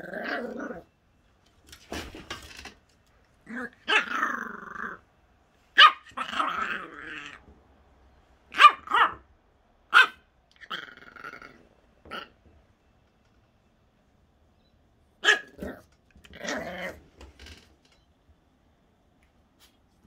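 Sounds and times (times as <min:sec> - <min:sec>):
puppy growling: 0:00.0 - 0:01.0, 0:03.4 - 0:05.1, 0:06.1 - 0:07.4, 0:10.5 - 0:12.4, 0:15.3 - 0:17.1
puppy yapping: 0:03.5 - 0:05.0, 0:05.8 - 0:07.4, 0:08.5 - 0:09.3, 0:09.9 - 0:11.2, 0:15.2 - 0:17.0.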